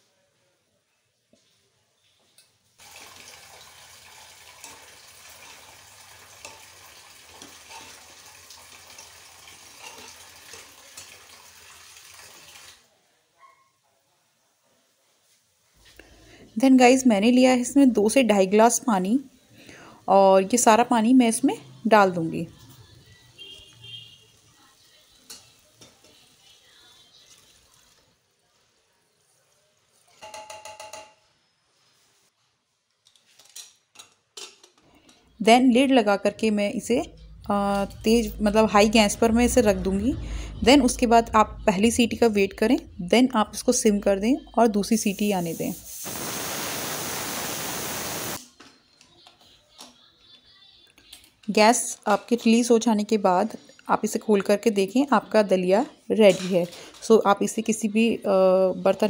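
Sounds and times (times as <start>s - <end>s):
food sizzling in a pot: 2.8s - 12.9s, 22.4s - 30.2s, 31.4s - 32.4s, 43.5s - 48.5s
spoon scraping a pot: 7.4s - 8.1s, 9.7s - 11.2s.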